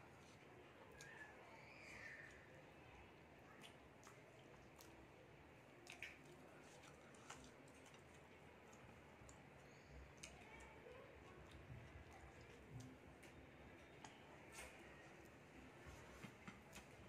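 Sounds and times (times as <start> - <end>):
chewing: 3.5 - 17.0.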